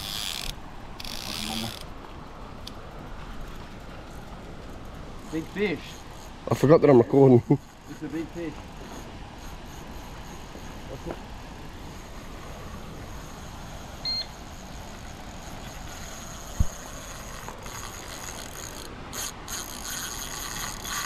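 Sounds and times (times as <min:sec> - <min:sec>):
outdoor background hiss: 0:00.0 - 0:21.0
short electronic beep: 0:14.0 - 0:14.3.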